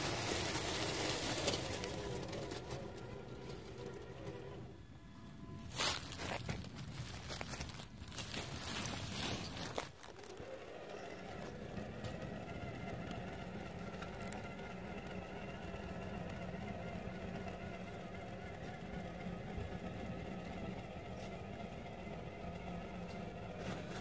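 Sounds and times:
electric motor whining: 10.0s - 24.0s.

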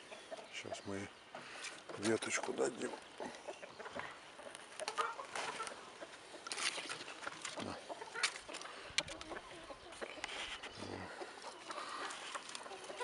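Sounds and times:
farmyard fowl clucking: 0.0s - 13.0s
rustling: 3.9s - 13.0s.

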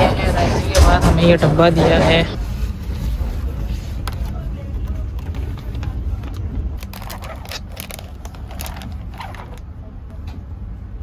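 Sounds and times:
train rumble: 0.0s - 11.0s
plastic film crinkling: 6.8s - 9.7s.

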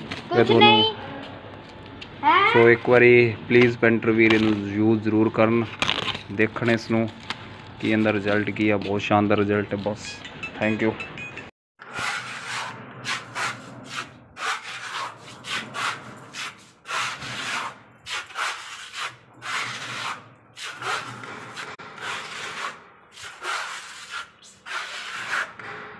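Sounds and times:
putty blade scraping wall: 11.8s - 25.8s.

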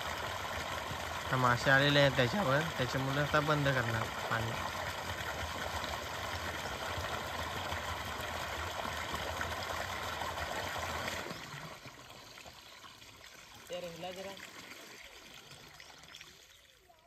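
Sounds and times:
water gushing and splashing: 0.0s - 17.0s
water trickling: 0.0s - 17.0s.

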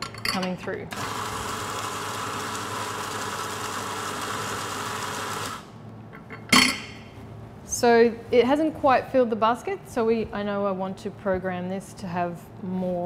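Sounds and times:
coffee grinder whirring: 0.9s - 5.7s.

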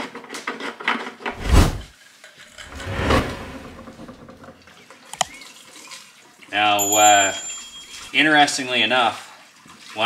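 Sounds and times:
rustling scrape: 1.3s - 1.9s, 2.5s - 4.6s.

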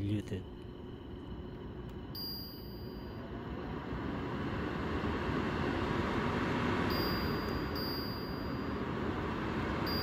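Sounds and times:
air purifier fan rushing: 0.0s - 10.0s
faint high beep: 2.2s - 3.2s, 6.9s - 8.8s.

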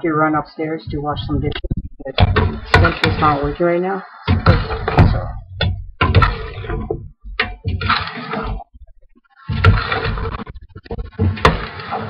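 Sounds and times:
sharp knocks and clattering: 0.9s - 3.6s, 4.3s - 12.0s
rough scraping or rustling: 6.0s - 7.0s, 7.7s - 8.7s, 9.4s - 12.0s.

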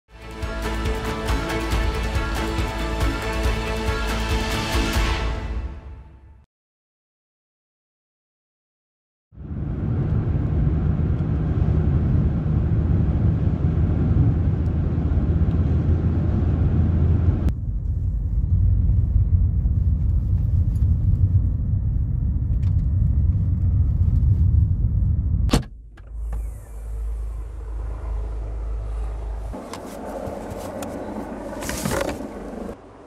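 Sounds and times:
car engine and tyre rumble: 9.4s - 33.0s
low hum: 9.4s - 33.0s.

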